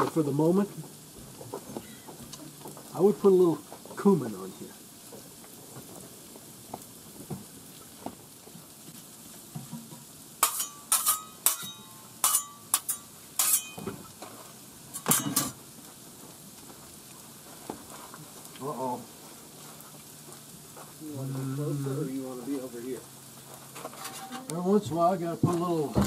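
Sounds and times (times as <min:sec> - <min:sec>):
food sizzling faintly: 0:00.0 - 0:26.0
metal spatulas scraping on griddle: 0:10.4 - 0:14.0, 0:14.9 - 0:15.6, 0:23.7 - 0:24.6.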